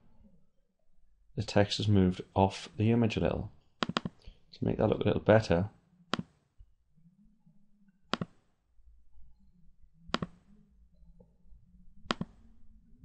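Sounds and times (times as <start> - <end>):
faint low hum: 0.0 - 13.0
mouse button clicking: 3.8 - 4.2, 8.1 - 8.4, 10.1 - 10.4, 12.0 - 12.4.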